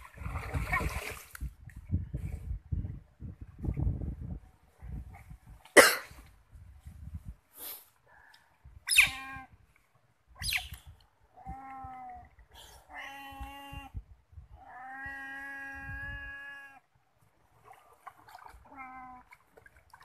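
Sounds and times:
otter whining calls: 8.9s - 9.5s.

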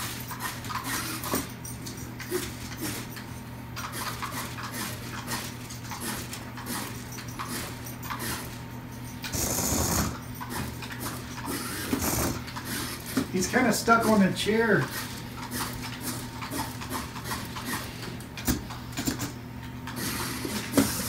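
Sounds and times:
toy motor whirring and clicking: 0.0s - 1.5s, 3.8s - 8.6s, 9.2s - 13.2s, 19.9s - 21.0s.

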